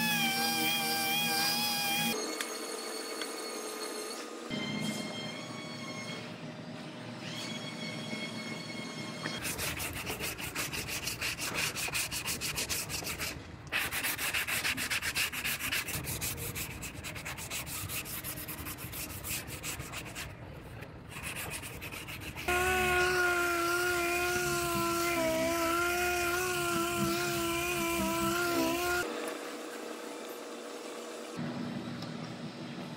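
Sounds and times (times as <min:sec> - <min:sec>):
hand sanding rasping: 0:09.4 - 0:20.4, 0:21.1 - 0:29.0.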